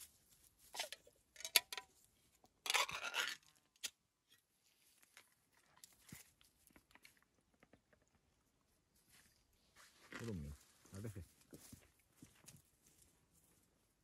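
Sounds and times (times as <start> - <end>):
food scraped from a can: 2.7 - 3.6.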